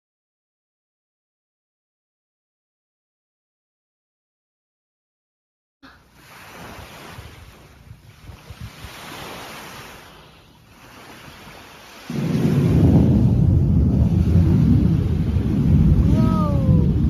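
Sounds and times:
surf rushing: 6.0s - 17.0s
wind on microphone: 6.2s - 17.0s
loud low rumble: 12.3s - 17.0s.

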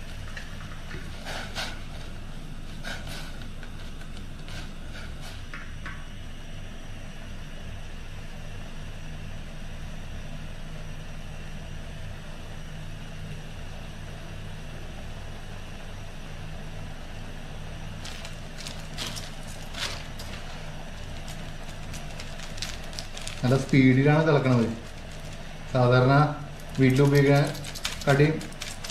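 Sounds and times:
water boiling and bubbling: 0.0s - 5.6s, 17.6s - 28.9s
gas stove burner rumbling: 0.0s - 8.4s, 13.2s - 28.9s.

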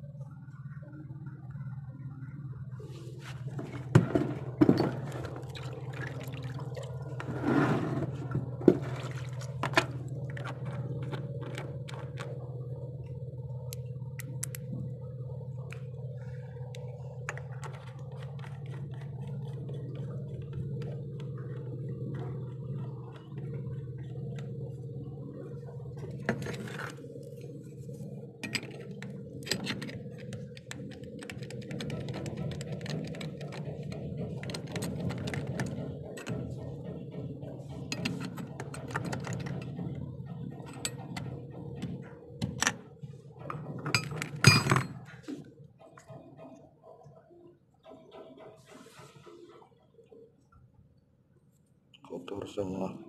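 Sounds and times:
low mechanical hum: 0.0s - 53.0s
metal clicks and knocks: 28.4s - 42.8s.

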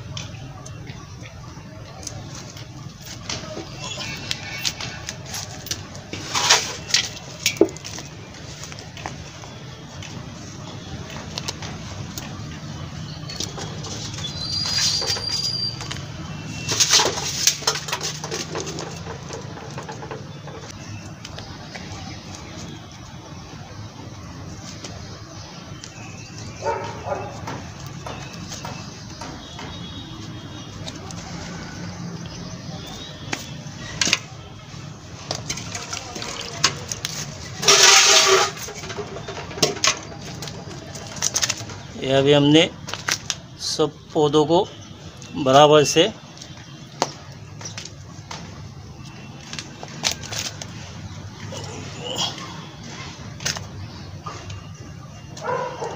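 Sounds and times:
bird whistling: 14.2s - 16.7s
hands scraping potting mix: 35.4s - 41.7s.

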